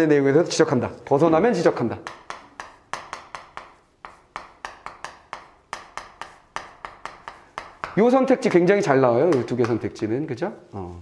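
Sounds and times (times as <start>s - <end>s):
writing strokes tapping: 1.4s - 10.0s.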